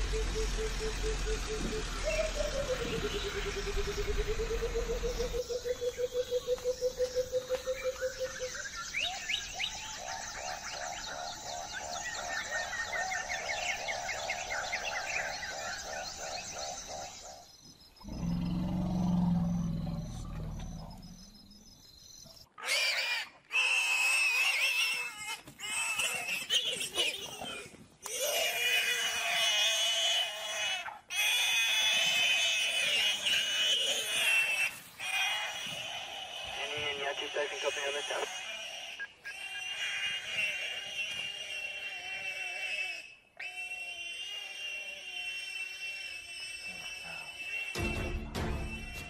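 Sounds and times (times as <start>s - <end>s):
higher animal calls: 18.0s - 21.6s, 26.0s - 48.0s
low animal growl: 18.0s - 21.7s
spurfowl calling harsh notes: 33.5s - 49.0s.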